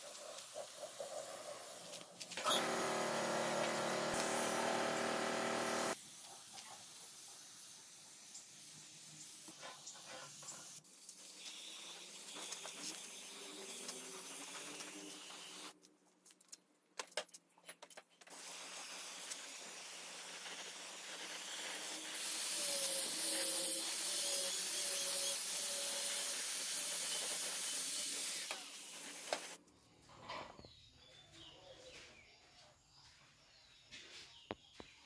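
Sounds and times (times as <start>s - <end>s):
spray gun hissing: 1.6s - 6.0s, 18.4s - 24.3s.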